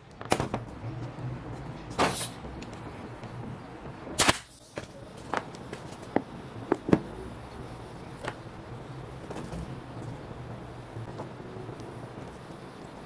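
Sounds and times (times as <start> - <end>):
pneumatic nailer firing: 1.9 - 2.4, 4.2 - 4.8.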